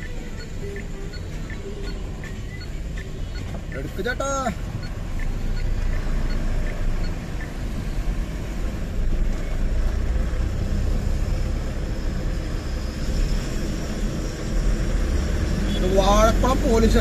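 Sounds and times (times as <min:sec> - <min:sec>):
truck engine and road rumble: 0:00.0 - 0:17.0.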